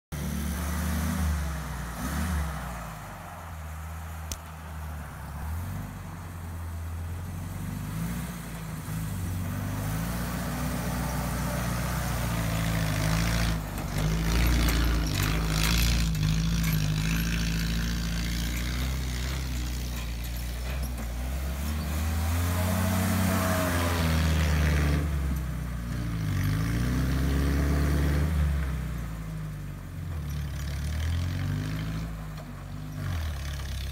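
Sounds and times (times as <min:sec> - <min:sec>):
car engine revving: 0:00.1 - 0:29.3.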